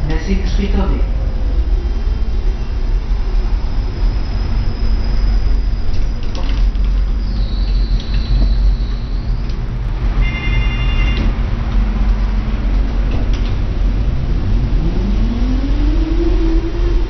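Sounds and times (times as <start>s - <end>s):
tram running gear rumble: 0.0s - 17.0s.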